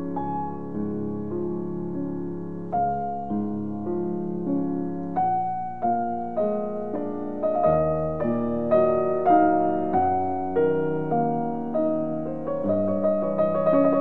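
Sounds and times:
slow gentle piano music: 0:00.0 - 0:14.0.

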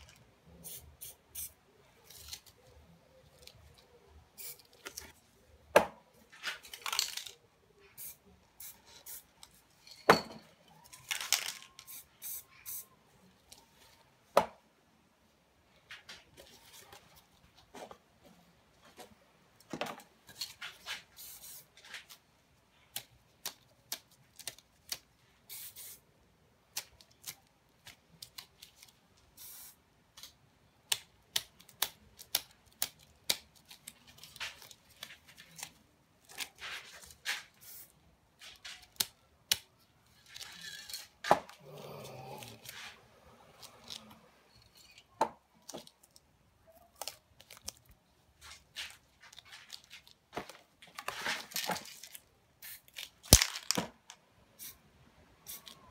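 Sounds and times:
spray paint cans hissing: 0:00.6 - 0:02.2, 0:04.4 - 0:04.8, 0:08.0 - 0:09.4, 0:11.2 - 0:12.9, 0:20.8 - 0:21.8, 0:25.5 - 0:26.0, 0:29.4 - 0:29.8, 0:37.3 - 0:38.0, 0:52.6 - 0:53.8, 0:54.6 - 0:54.8, 0:55.4 - 0:55.8
paper rustling and tearing: 0:48.4 - 0:53.8.

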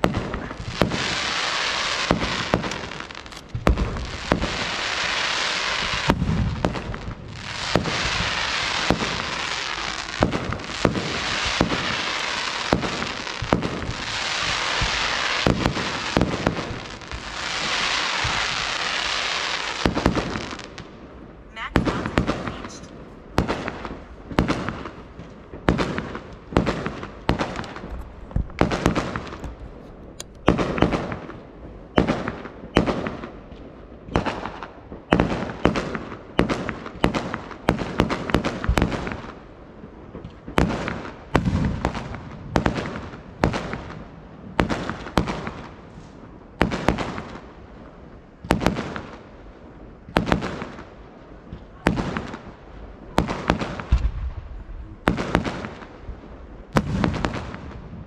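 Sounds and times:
fireworks bursting: 0:00.0 - 0:58.0
rolling echo: 0:19.8 - 0:35.8.

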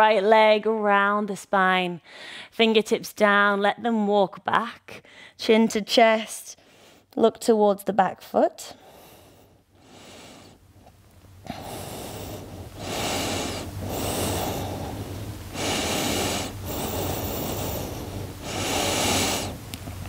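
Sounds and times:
woman breathing deeply: 0:02.0 - 0:02.5, 0:05.0 - 0:05.4, 0:08.8 - 0:10.6, 0:11.4 - 0:19.7.

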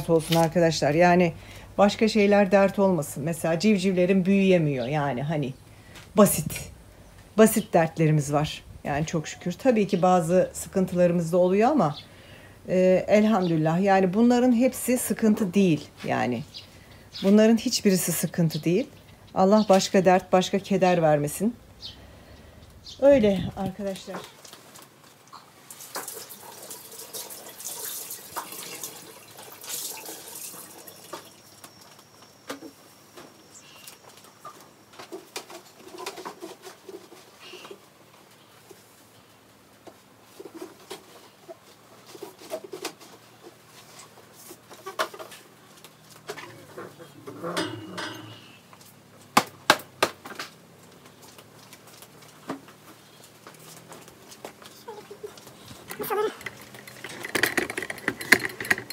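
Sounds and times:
water running and splashing: 0:25.6 - 0:31.4
knocks and clicks: 0:55.9 - 0:58.9.

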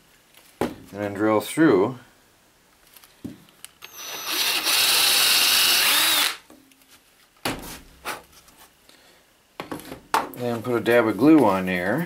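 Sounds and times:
cordless drill boring wood: 0:03.8 - 0:06.4.

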